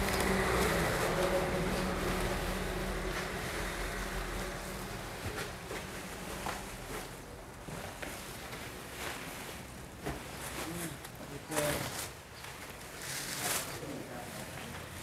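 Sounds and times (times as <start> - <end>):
vehicle engine humming: 0.0 - 6.9
street background noise: 0.0 - 15.0.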